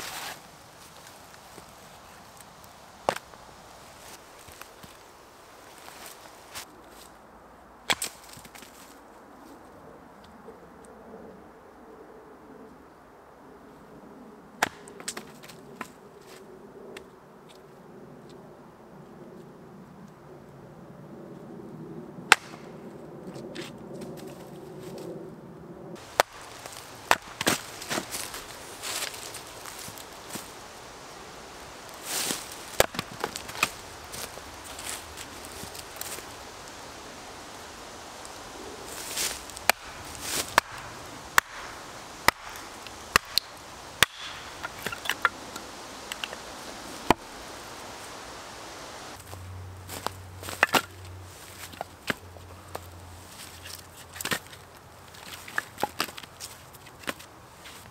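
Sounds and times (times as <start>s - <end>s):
hatchet chopping log: 7.9s - 8.2s, 14.6s - 15.2s, 22.3s - 22.6s, 26.1s - 28.2s, 32.8s - 33.8s, 39.6s - 45.4s
axe splitting firewood: 7.9s - 8.4s, 22.3s - 22.6s, 26.0s - 29.7s, 32.1s - 34.4s, 39.2s - 47.3s, 50.4s - 51.0s.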